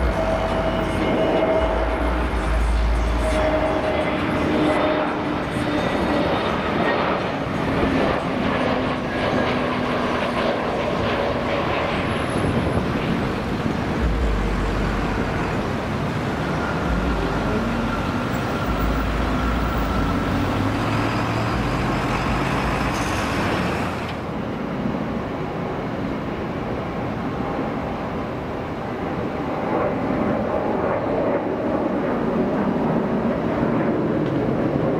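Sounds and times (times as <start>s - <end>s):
jet airliner rushing noise: 0.0s - 34.9s
deep low rumble: 12.4s - 18.2s.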